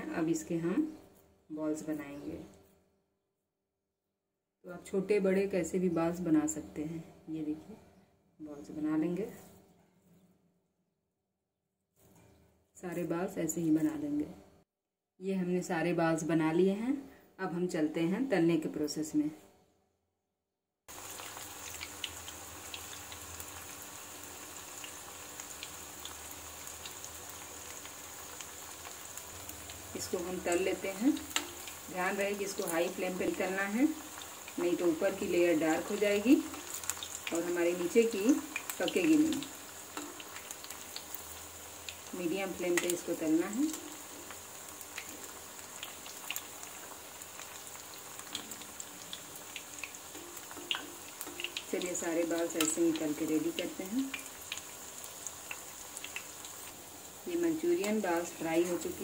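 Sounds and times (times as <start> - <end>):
food deep-frying in hot oil: 20.9 - 59.0.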